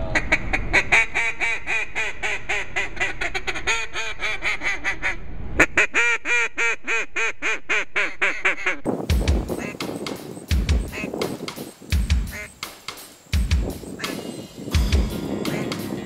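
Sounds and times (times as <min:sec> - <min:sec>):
duck call quacks: 0:00.0 - 0:08.9, 0:09.5 - 0:09.9, 0:10.8 - 0:11.4, 0:12.3 - 0:12.6, 0:13.9 - 0:16.0.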